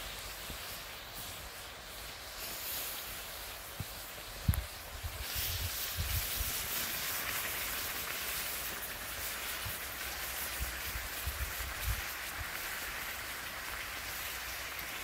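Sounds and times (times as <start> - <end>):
hot stone sizzling in water: 0.0 - 15.0.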